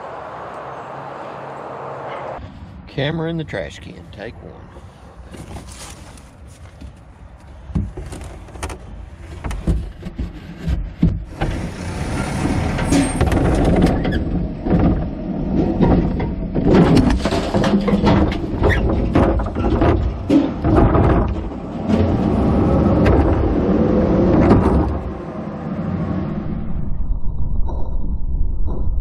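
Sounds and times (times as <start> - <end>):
garbage truck arm lifting: 7.8 - 25.2
plastic bin rattling: 15.6 - 21.5.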